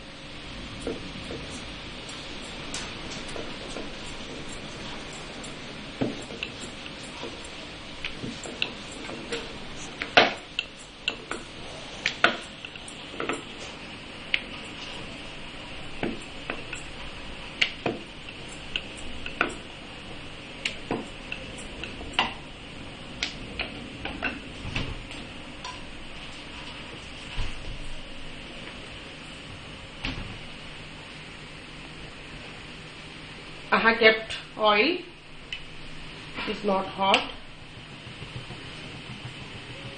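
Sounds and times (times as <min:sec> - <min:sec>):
wooden knocks of rolling dough: 0:06.0 - 0:06.6, 0:37.2 - 0:39.9.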